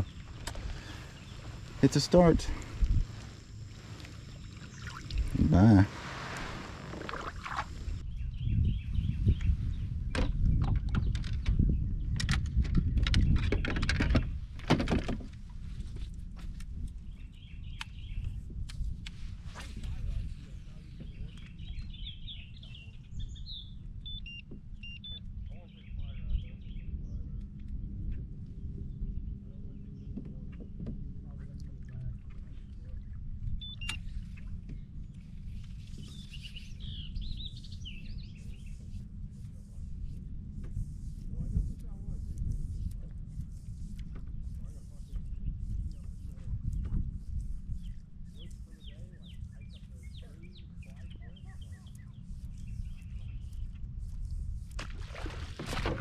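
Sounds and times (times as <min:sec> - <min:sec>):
wild birds chirping: 0:00.0 - 0:09.9, 0:32.5 - 0:39.0
steady low rumble: 0:00.0 - 0:13.4
wind rumble on microphone: 0:00.0 - 0:56.0
faint bird chirps: 0:20.7 - 0:27.3, 0:32.9 - 0:34.9.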